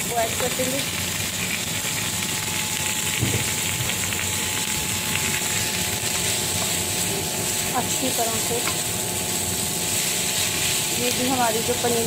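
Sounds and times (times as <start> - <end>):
food sizzling in a pan: 0.0 - 12.0
spatula stirring: 5.6 - 12.0.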